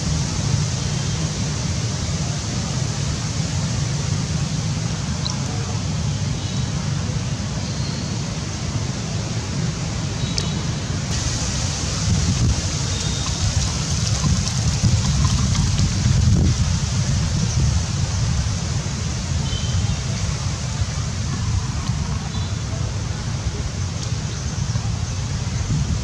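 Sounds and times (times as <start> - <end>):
hiss: 11.1 - 22.6.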